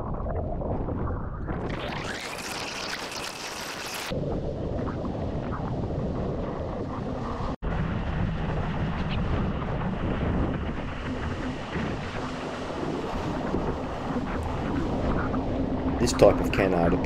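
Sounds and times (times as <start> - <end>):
water rushing and splashing: 1.6 - 4.1
wind buffeting microphone: 4.1 - 17.0.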